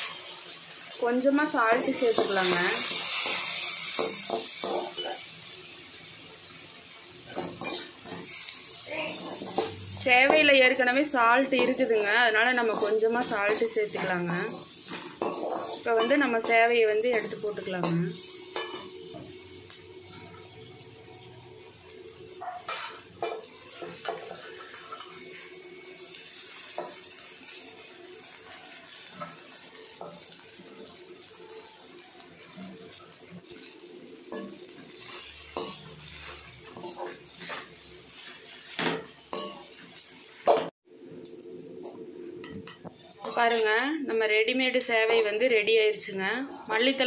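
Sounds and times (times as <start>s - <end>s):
metal spatula scraping frying pan: 7.2s - 10.5s, 11.4s - 18.9s, 22.6s - 25.2s, 34.3s - 39.8s, 43.2s - 43.7s.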